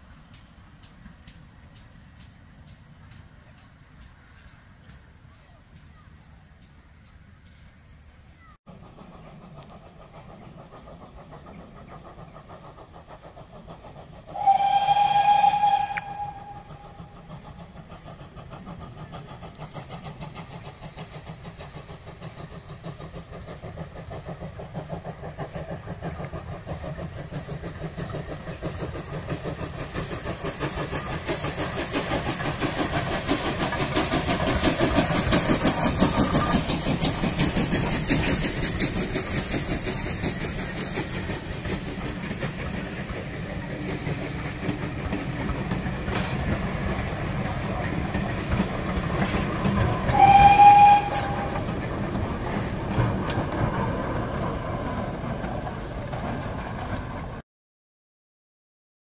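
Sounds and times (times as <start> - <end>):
steam locomotive chuffing: 0.0 - 57.4
train wheels on rails: 0.0 - 57.4
steam whistle blast: 14.3 - 17.1, 50.0 - 51.7.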